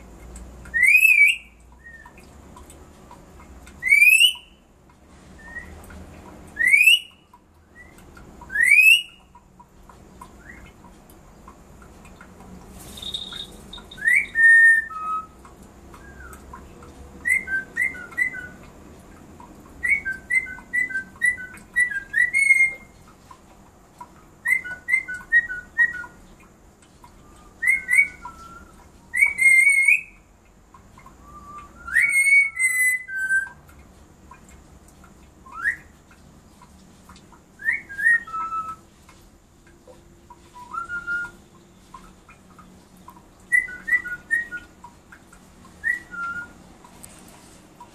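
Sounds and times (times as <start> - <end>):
parrot whistling high notes: 0.8 - 2.0, 12.9 - 15.4, 40.6 - 41.4.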